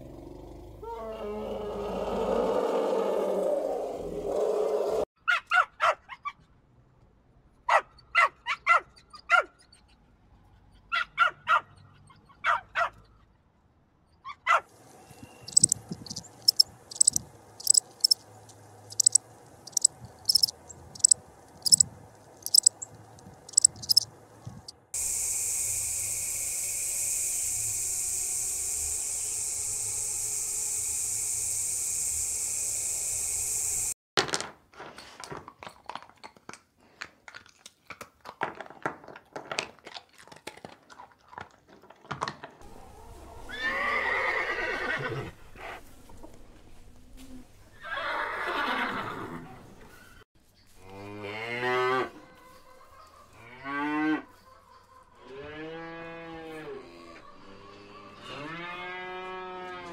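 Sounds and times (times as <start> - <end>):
puppy yipping and barking: 5.3 - 6.4, 7.7 - 9.6
bird chip notes: 15.5 - 18.2, 18.9 - 21.8, 22.4 - 22.9, 23.5 - 24.0
dog crunching chew bone: 35.5 - 42.4.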